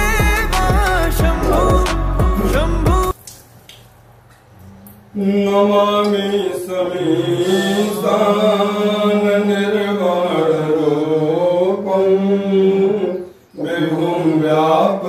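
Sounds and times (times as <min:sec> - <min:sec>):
background music: 0:00.0 - 0:03.2
man chanting: 0:00.0 - 0:03.2, 0:05.1 - 0:15.0.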